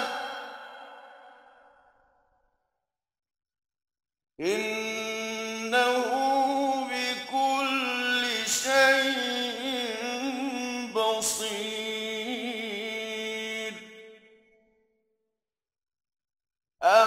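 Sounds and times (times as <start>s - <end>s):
man reciting melodically: 4.4s - 13.9s.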